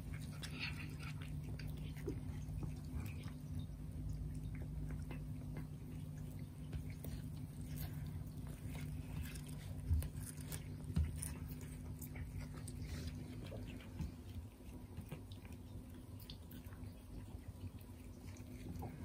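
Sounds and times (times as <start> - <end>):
cats chewing grass: 0.0 - 19.0
steady low hum: 0.0 - 19.0.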